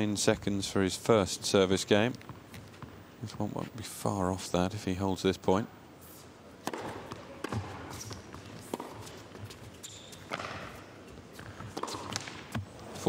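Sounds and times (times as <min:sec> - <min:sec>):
tennis ball struck by rackets: 0:06.6 - 0:09.2, 0:10.3 - 0:10.8, 0:11.4 - 0:12.7.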